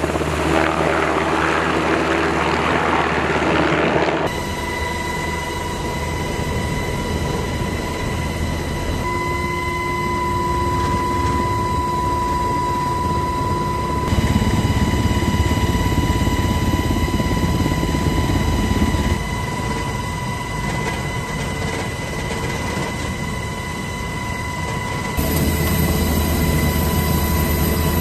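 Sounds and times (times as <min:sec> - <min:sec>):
helicopter high whine: 0:00.0 - 0:28.0
rotor and engine rumble: 0:03.8 - 0:20.0, 0:24.8 - 0:28.0.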